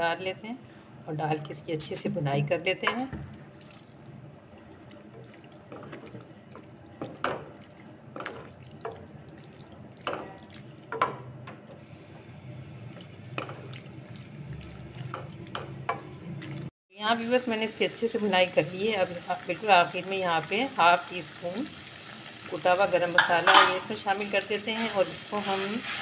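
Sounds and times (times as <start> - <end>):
food sizzling in oil: 17.3 - 26.0
spoon knocking and scraping pot: 23.2 - 23.8.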